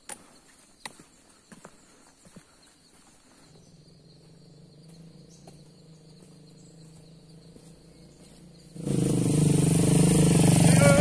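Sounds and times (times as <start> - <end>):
motorcycle engine running: 3.7 - 11.0.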